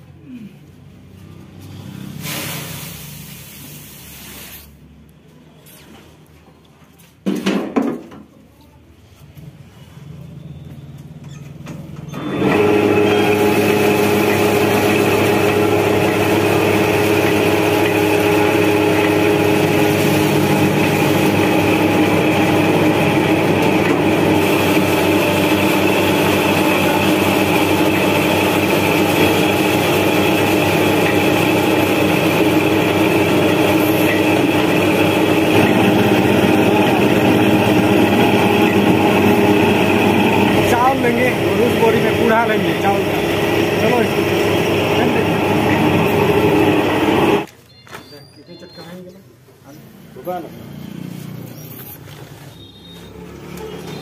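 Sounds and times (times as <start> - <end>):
rice huller machine running: 12.1 - 47.5.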